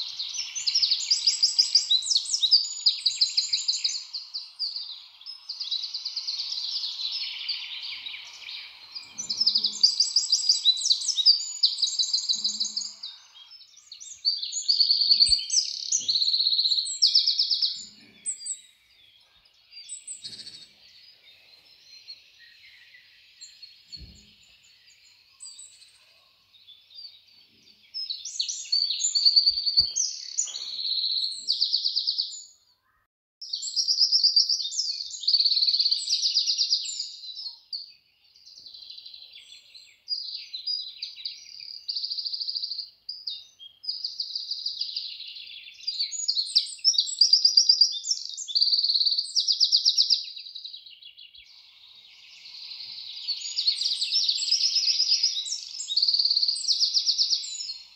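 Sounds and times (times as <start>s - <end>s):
birds chirping and trilling: 0.0s - 57.9s.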